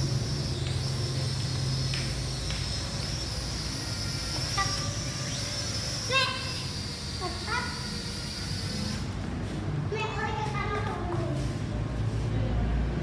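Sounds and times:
small drone propellers whirring: 0.0 - 9.4.

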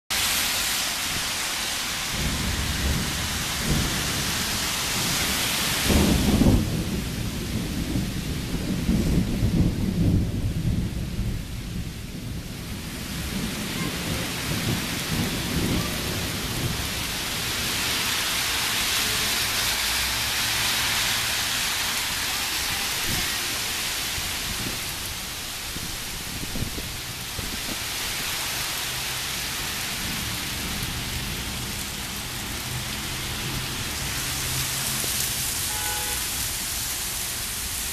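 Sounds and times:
heavy rain pouring on street: 0.1 - 37.9
thunder rumbling: 1.9 - 20.3, 22.0 - 28.4.

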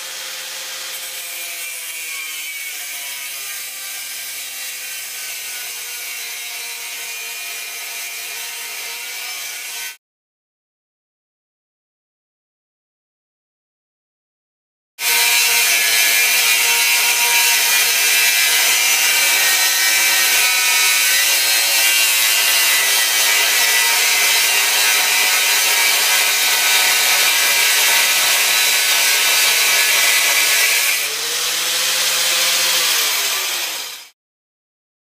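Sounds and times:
angle grinder cutting steel: 0.0 - 10.0, 15.0 - 34.2
grinder running free: 15.0 - 34.2.

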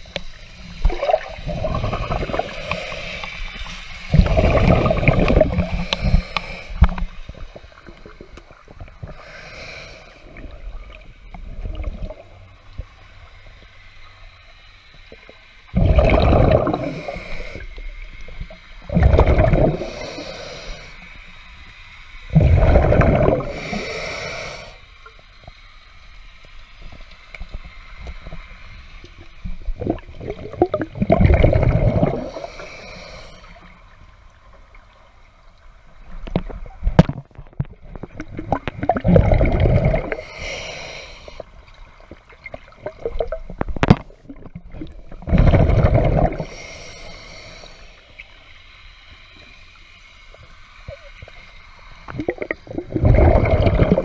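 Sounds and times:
water gurgling: 0.0 - 9.4, 15.2 - 20.8, 22.3 - 24.0, 29.1 - 32.6, 35.9 - 41.2, 41.8 - 46.9, 50.9 - 54.0
underwater breathing: 0.0 - 10.7, 15.8 - 18.0, 18.9 - 21.3, 22.3 - 25.0, 31.0 - 33.8, 38.7 - 41.6, 44.8 - 48.5.

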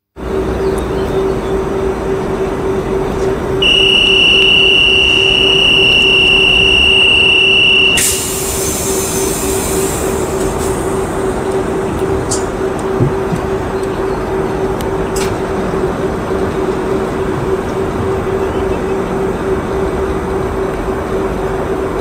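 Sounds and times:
train hum with pulsing low tone: 0.2 - 22.0
loud high tone: 3.6 - 9.2.

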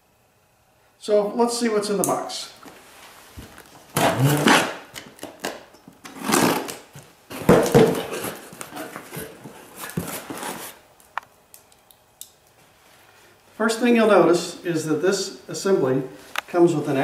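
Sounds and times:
cardboard flaps scraping: 3.0 - 10.8
packing tape tearing: 3.6 - 10.8.

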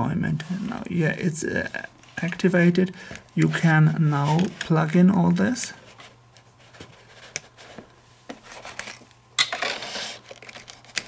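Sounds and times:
scraping and rubbing: 9.6 - 11.0.

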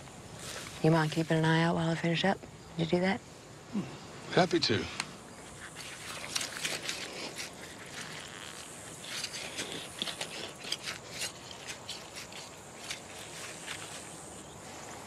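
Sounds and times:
hands pulling weeds in dry grass: 5.5 - 14.8.

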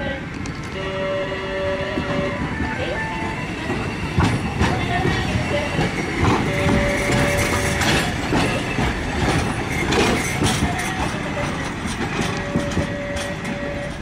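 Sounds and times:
streetcar wheels rumbling and clacking: 0.0 - 14.0.

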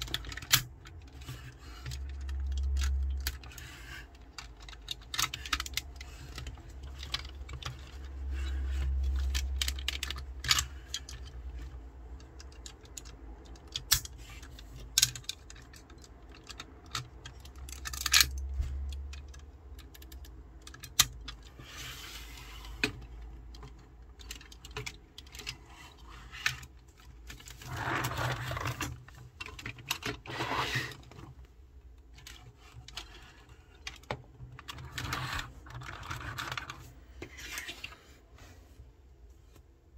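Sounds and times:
rubbing scrapes: 30.3 - 31.0.

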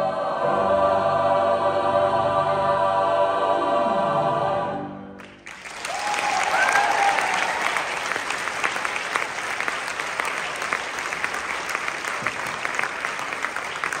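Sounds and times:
audience applauding: 5.2 - 14.0.

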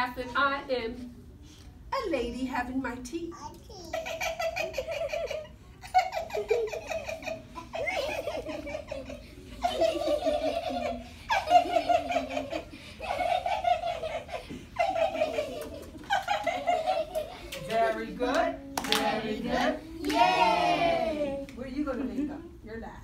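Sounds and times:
children laughing: 3.8 - 17.7.

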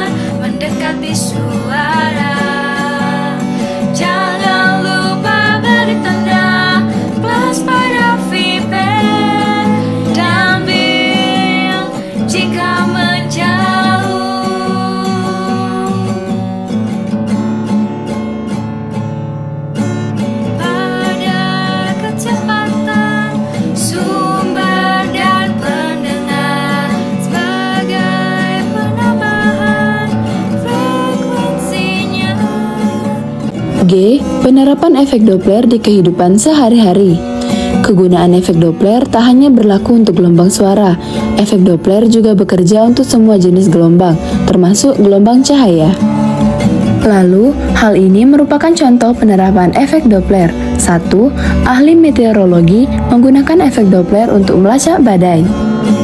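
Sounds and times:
girls singing: 0.0 - 16.5, 20.6 - 33.4
acoustic guitar: 0.0 - 56.0.

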